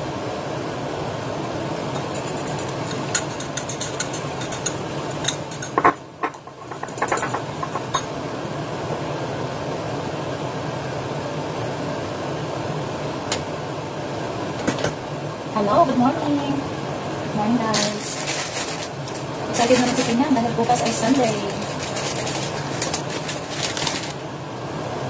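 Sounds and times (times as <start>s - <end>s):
utensil clinking on pan: 2.0s - 8.1s.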